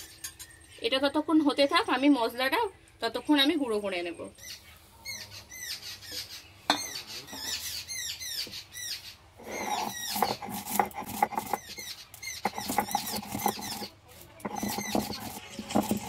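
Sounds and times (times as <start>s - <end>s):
stone grinding and scraping: 9.4s - 16.0s.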